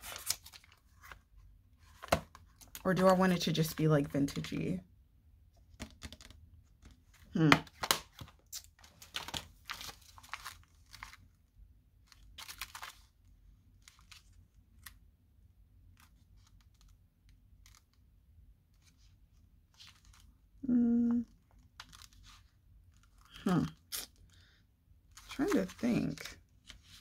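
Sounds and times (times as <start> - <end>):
plastic packaging crinkling: 7.8 - 11.3, 12.1 - 13.1
person humming: 20.6 - 21.3.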